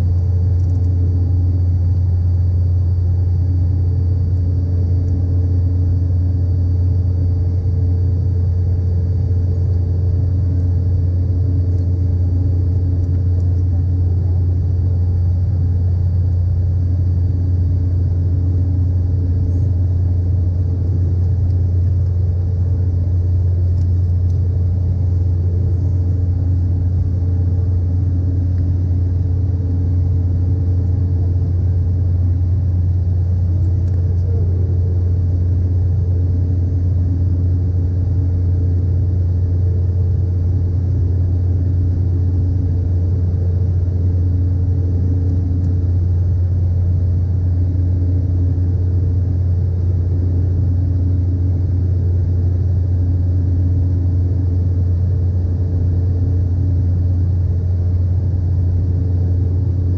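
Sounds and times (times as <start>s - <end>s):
faint high whine: 0.0s - 59.9s
jet cabin drone: 0.0s - 59.9s.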